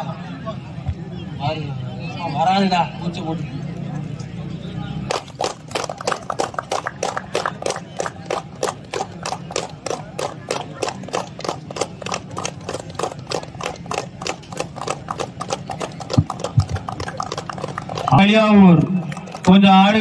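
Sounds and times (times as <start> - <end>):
people clapping rhythmically: 5.0 - 20.0.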